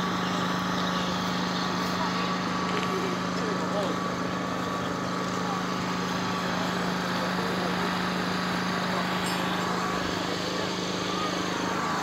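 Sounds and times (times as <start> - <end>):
small engine droning: 0.0 - 12.0.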